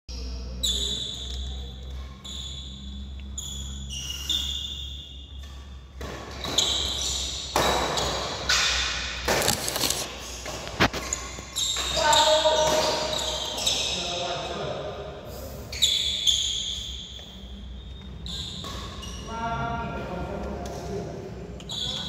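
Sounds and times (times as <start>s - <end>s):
court shoes squeaking on floor: 0.1s - 14.7s, 15.6s - 19.6s, 21.5s - 22.0s
racket hitting shuttlecock: 5.4s - 9.5s, 10.4s - 13.6s.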